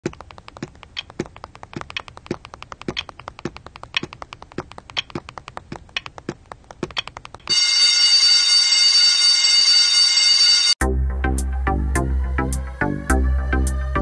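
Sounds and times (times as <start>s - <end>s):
clock ticking: 0.0s - 7.5s.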